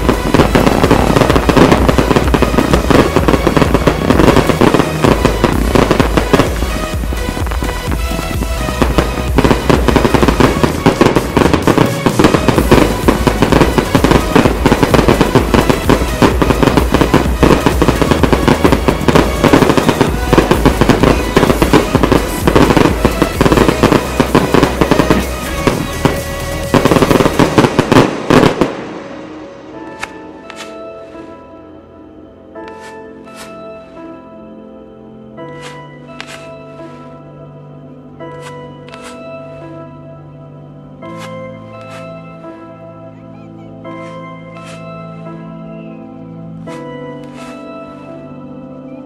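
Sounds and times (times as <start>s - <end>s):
fireworks bursts and crackle: 0.0s - 31.3s, 35.5s - 37.2s, 43.7s - 45.5s, 46.5s - 48.1s
music: 0.0s - 49.0s.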